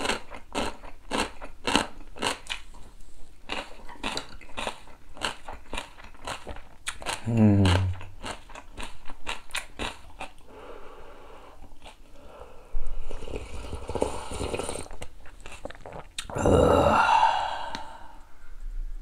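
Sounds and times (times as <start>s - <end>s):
crunchy chewing: 0.0s - 10.5s, 11.6s - 12.2s, 14.7s - 16.3s
loud slurping of broth: 13.0s - 15.1s.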